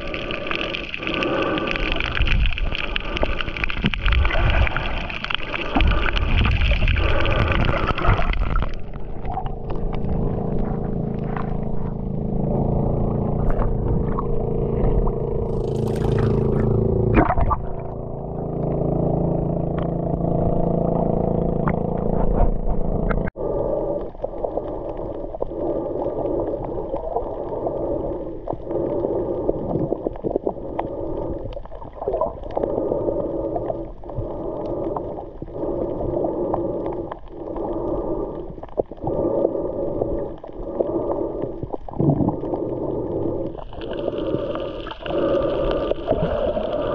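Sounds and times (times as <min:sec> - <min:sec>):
water sloshing and gurgling: 0:00.0 - 0:46.9
steady droning hum: 0:08.7 - 0:24.0
water splash: 0:14.9 - 0:18.1.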